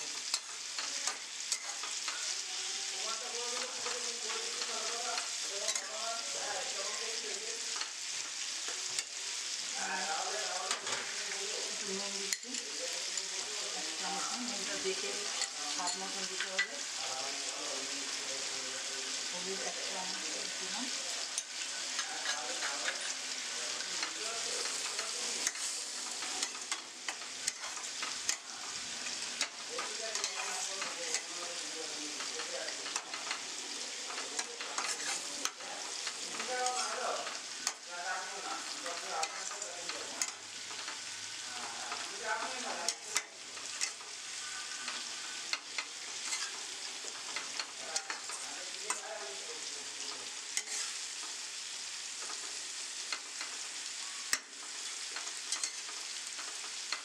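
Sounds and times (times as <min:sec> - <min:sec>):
spice paste sizzling: 0:00.0 - 0:57.0
spatula scraping and tapping pan: 0:00.1 - 0:02.4, 0:21.3 - 0:49.1, 0:50.0 - 0:51.4, 0:52.2 - 0:57.0.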